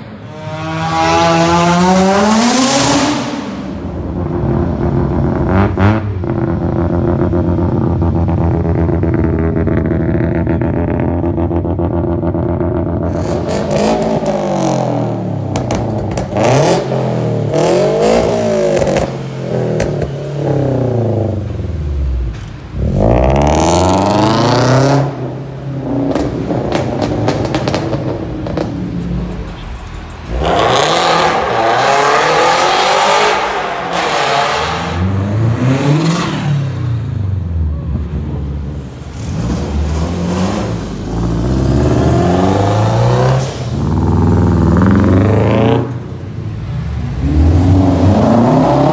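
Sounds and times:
car engines revving and accelerating: 0.0 - 48.9
exhaust crackles and pops: 26.1 - 30.4.

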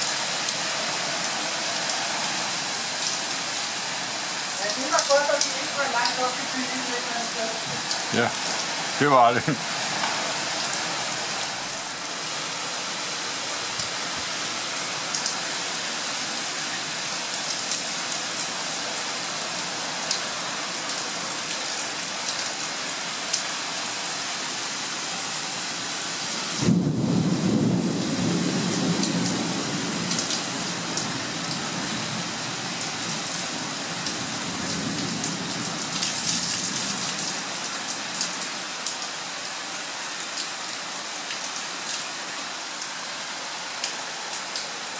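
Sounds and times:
heavy rain: 0.0 - 44.9
thunder rumble: 26.6 - 30.2.

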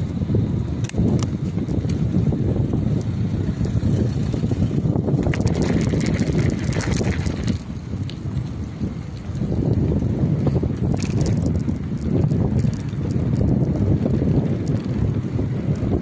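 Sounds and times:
bicycle tyres rolling over paving: 0.0 - 16.0
tyres crackling on gravel: 0.0 - 16.0
wind rumble on microphone: 0.0 - 16.0.

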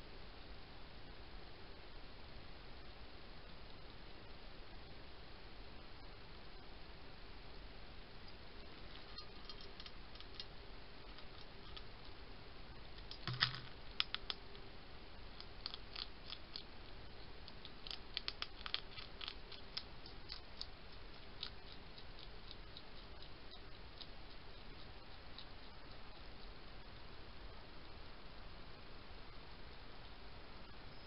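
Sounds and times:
steady hiss: 0.0 - 31.0
hedgehog chewing and crunching: 8.2 - 28.0.

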